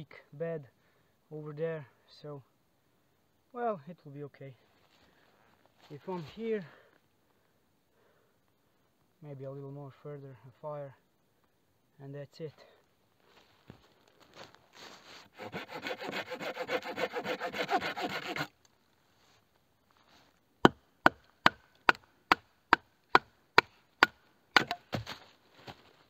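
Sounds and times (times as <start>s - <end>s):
hand saw cutting wood: 15.2s - 18.5s
sharp wooden knocks: 20.6s - 25.1s.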